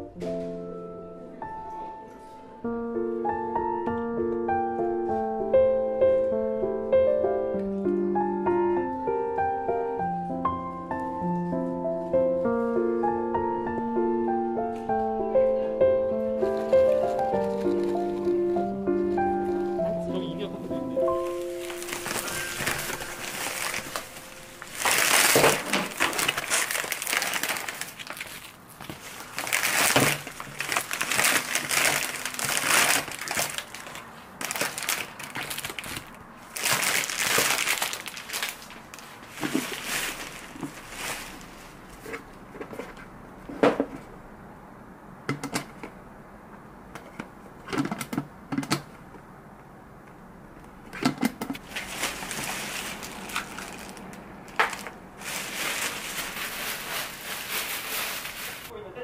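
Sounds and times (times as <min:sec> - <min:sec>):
crinkling and rustling handling noise: 0:16.4 - 0:44.2, 0:50.6 - 0:58.8.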